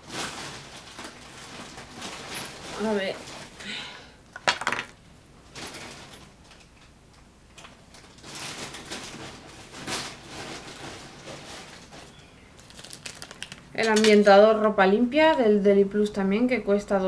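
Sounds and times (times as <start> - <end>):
packaging rustling: 0.0 - 3.6, 8.0 - 14.0.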